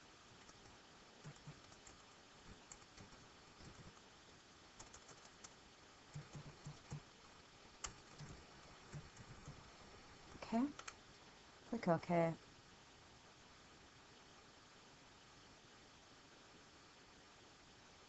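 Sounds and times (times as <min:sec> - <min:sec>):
computer keyboard typing: 0:00.4 - 0:04.0, 0:04.8 - 0:07.0, 0:07.8 - 0:09.7, 0:10.7 - 0:11.0.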